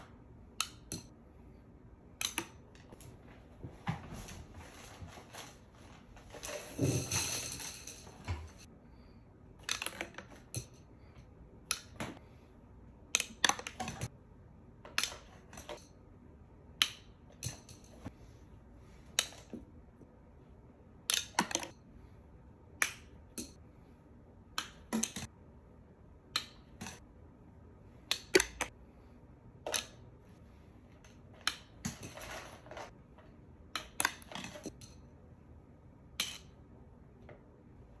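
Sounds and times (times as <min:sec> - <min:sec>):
plastic straws striking and clicking: 0:28.0 - 0:28.8.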